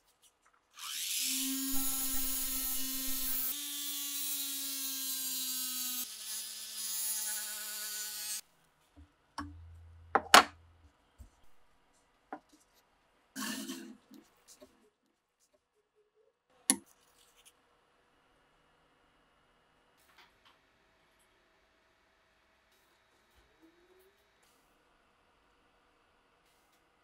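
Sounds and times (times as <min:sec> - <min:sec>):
rotary tool motor whine: 0:00.8 - 0:08.4
polishing wheel hiss: 0:01.4 - 0:03.6
clicks and knocks: 0:09.4 - 0:10.6.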